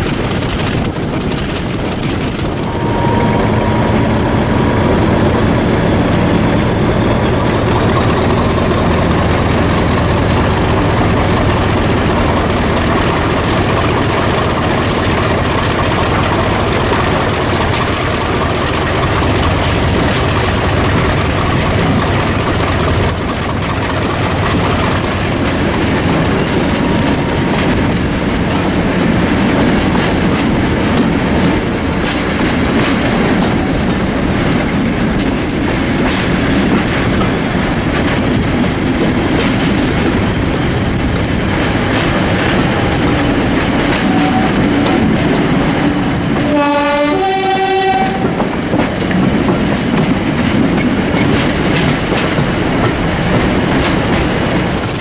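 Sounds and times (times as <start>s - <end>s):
diesel locomotive engine and rail noise: 0.0s - 55.0s
two-tone train horn: 2.6s - 5.4s, 42.6s - 45.2s, 46.4s - 48.5s.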